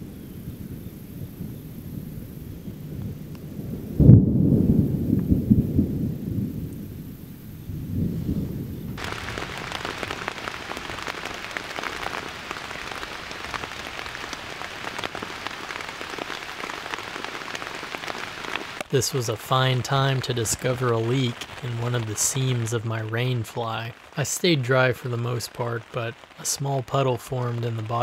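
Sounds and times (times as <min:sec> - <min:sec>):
thunder rumbling: 0:00.0 - 0:28.0
heavy rain on tent: 0:07.9 - 0:28.0.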